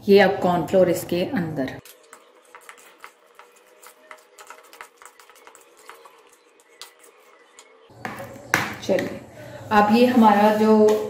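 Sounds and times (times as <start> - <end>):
fork scraping a bowl: 1.8 - 8.4.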